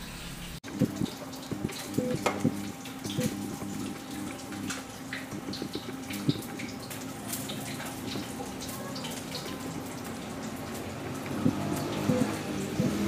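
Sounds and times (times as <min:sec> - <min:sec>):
food simmering in a pan: 0:00.6 - 0:13.0.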